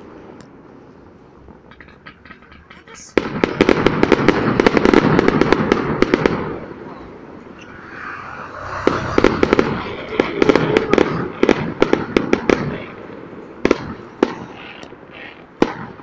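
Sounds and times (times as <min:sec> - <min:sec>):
fireworks bangs and crackling: 0:01.4 - 0:16.0.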